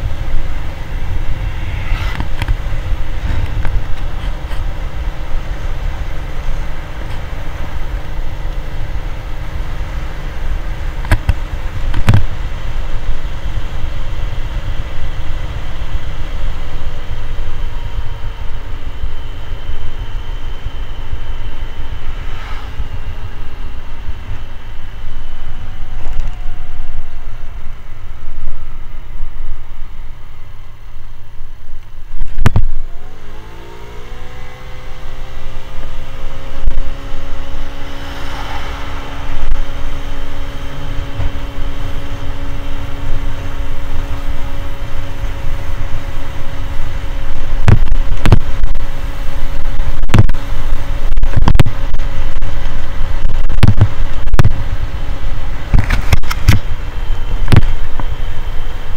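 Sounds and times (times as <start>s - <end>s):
wind rushing over microphone: 0.0s - 58.9s
scooter engine accelerating: 32.5s - 49.4s
buffeting thumps: 49.6s - 58.2s.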